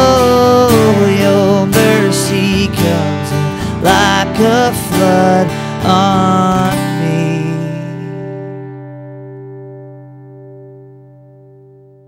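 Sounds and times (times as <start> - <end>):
man singing: 0.0 - 8.8
acoustic guitar strummed: 0.0 - 12.0.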